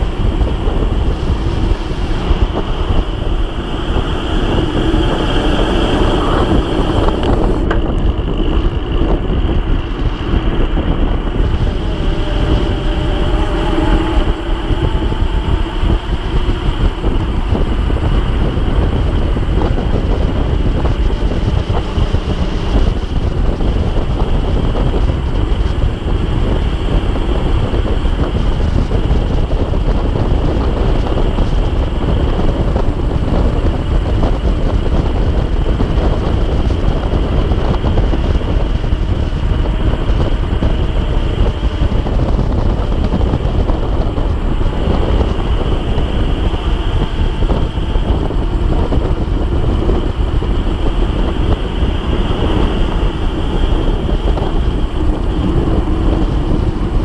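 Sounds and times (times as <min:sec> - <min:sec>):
thin high whine: 0:00.0 - 0:57.0
wind rushing over microphone: 0:00.0 - 0:57.0.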